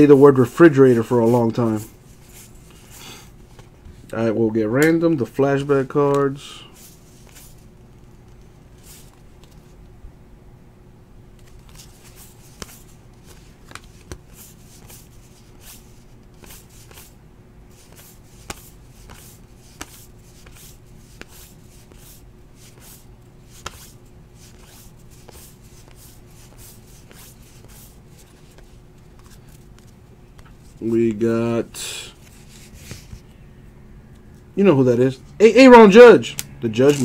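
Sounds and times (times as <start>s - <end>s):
faint steady hum: 0.0s - 37.0s
cards flicking and snapping: 11.4s - 15.7s, 17.8s - 22.0s, 22.7s - 27.8s, 36.4s - 37.0s.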